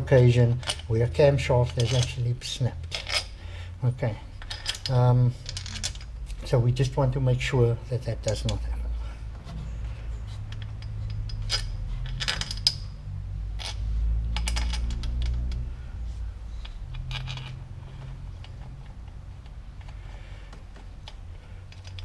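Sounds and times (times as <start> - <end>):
steady low hum: 0.0 - 22.0
steel bolts clinking: 0.4 - 3.4, 4.4 - 6.1, 10.4 - 15.7, 16.6 - 20.0.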